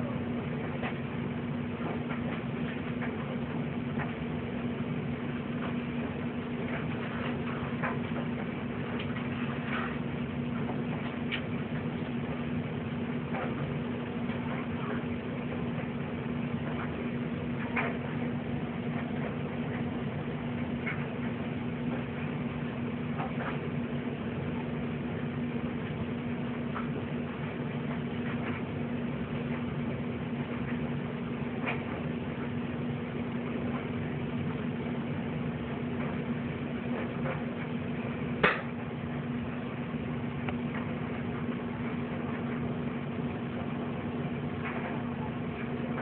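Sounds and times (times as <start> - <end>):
low hum: 0.0 - 46.0.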